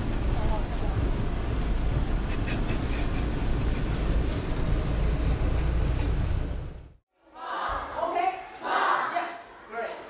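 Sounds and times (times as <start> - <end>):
vehicle engine rumble: 0.0 - 7.0.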